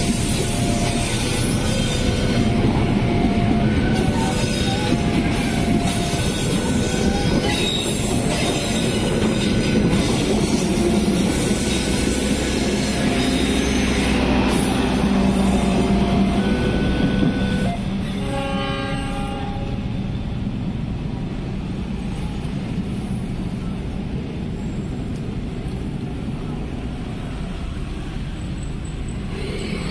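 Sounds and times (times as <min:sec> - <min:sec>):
train wheels rumbling and clattering: 0:00.0 - 0:29.9
wheel squeal: 0:03.9 - 0:18.3.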